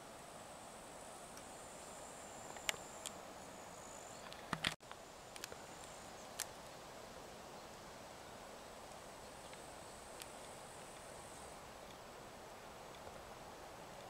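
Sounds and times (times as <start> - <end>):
steady low hiss: 0.0 - 14.0.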